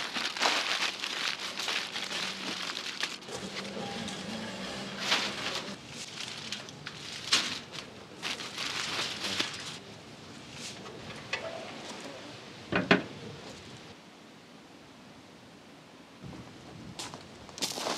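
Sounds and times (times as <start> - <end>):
aluminium foil crinkling: 0.0 - 9.8.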